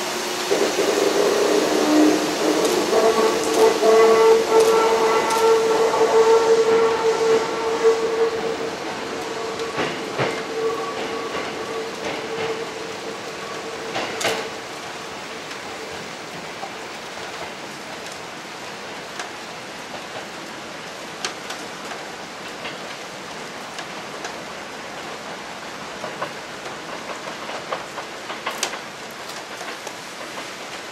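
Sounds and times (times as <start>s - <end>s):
electric train whine: 0.0s - 22.4s
steady hiss: 0.0s - 30.9s.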